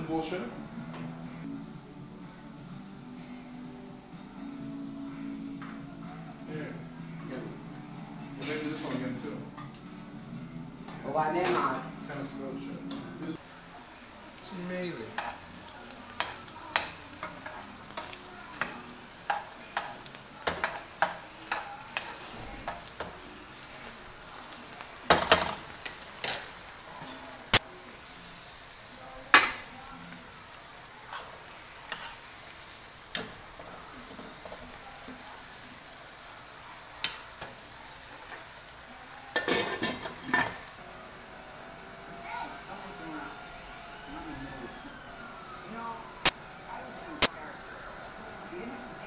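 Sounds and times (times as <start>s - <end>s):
meat sizzling in a frying pan: 13.3s - 40.8s
utensil scraping a pan: 15.0s - 23.3s, 31.1s - 32.3s, 39.4s - 40.8s
pot lid clattering: 39.4s - 40.6s.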